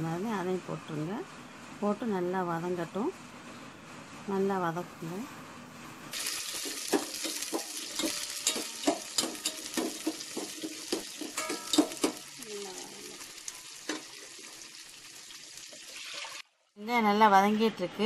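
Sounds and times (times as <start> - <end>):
food sizzling in hot oil: 6.1 - 16.5.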